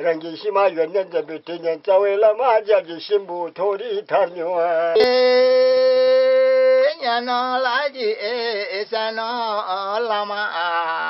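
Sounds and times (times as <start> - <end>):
man singing unaccompanied: 0.0 - 11.0.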